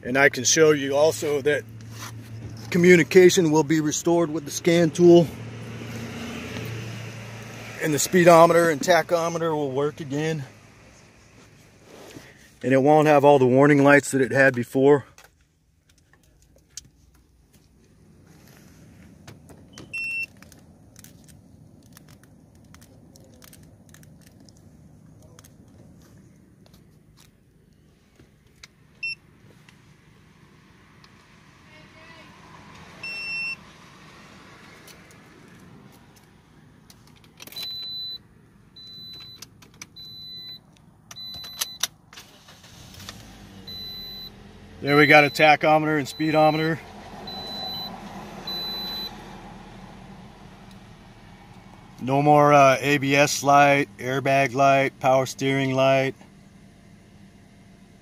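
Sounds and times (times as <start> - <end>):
car engine starting: 0.0 - 58.0
car keys clicking and jingling: 19.1 - 27.4, 34.7 - 44.3, 44.9 - 46.6
car warning chime beeping: 19.7 - 20.3, 29.0 - 29.3, 33.0 - 33.6, 37.5 - 42.9, 43.6 - 49.2.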